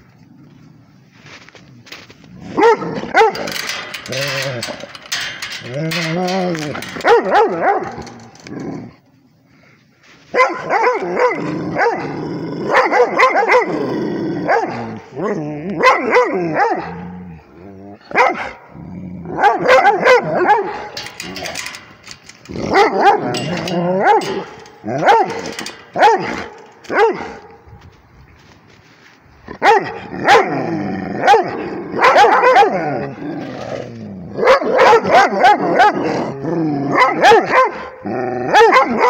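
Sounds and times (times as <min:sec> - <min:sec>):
dogs barking: 0:02.5 - 0:06.1, 0:06.8 - 0:08.1, 0:10.3 - 0:13.8, 0:14.4 - 0:15.0, 0:15.8 - 0:17.0, 0:18.1 - 0:18.7, 0:19.3 - 0:21.8, 0:22.5 - 0:27.6, 0:29.6 - 0:30.6, 0:31.2 - 0:33.0, 0:34.4 - 0:36.2, 0:36.9 - 0:39.0.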